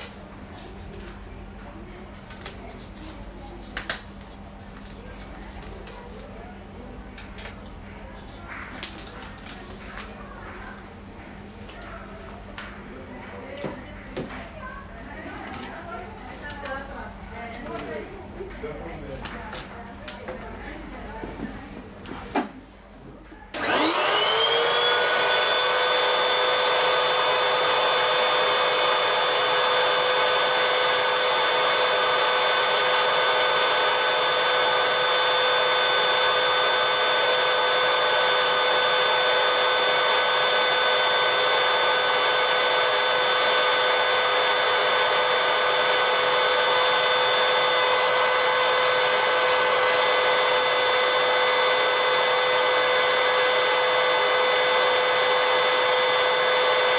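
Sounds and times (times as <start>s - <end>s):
vacuum cleaner motor whining: 23.5s - 56.9s.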